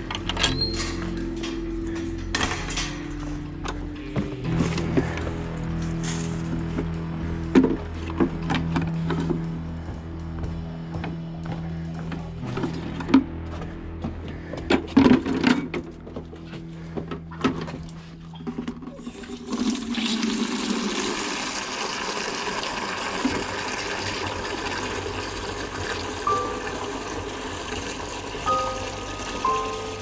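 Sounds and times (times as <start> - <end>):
hose water filling bucket: 18.4 - 30.0.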